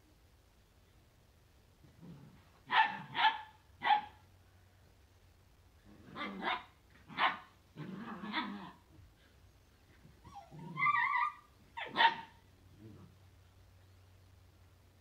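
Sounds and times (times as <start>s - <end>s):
puppies barking: 2.7s - 4.2s, 6.2s - 7.5s, 10.3s - 12.4s
puppies growling: 5.8s - 9.0s, 10.2s - 12.0s.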